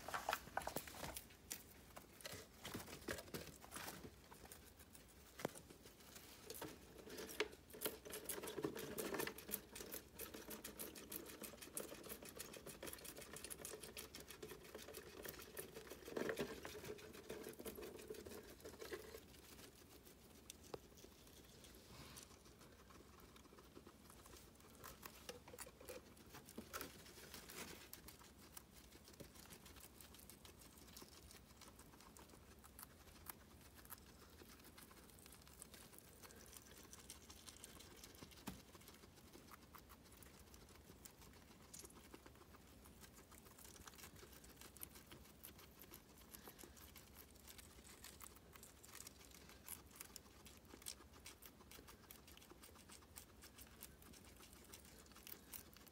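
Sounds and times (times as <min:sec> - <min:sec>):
rustling on pad and cardboard: 0:00.0 - 0:09.7, 0:14.5 - 0:30.1
guinea pigs chewing: 0:00.0 - 0:55.9.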